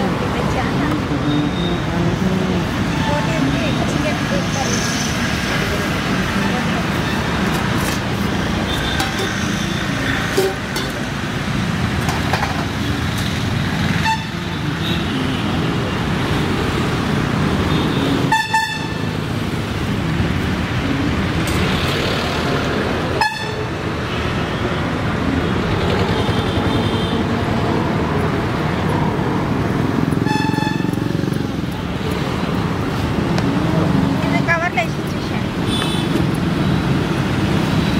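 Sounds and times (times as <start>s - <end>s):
road traffic noise: 0.0s - 37.9s
vehicle horns honking: 14.0s - 15.1s, 17.8s - 19.0s, 23.2s - 23.7s, 30.2s - 30.9s, 35.7s - 36.2s.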